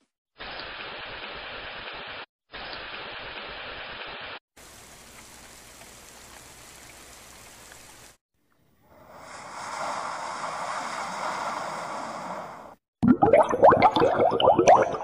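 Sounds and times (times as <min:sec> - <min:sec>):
hiss of falling rain: 0:04.6 - 0:08.2.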